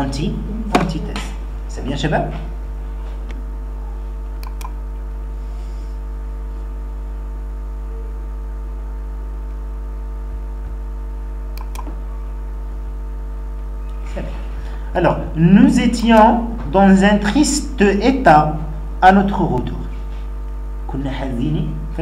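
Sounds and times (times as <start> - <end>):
electrical mains hum: 0.0 - 22.0
computer mouse clicks: 4.4 - 4.8, 11.5 - 12.0.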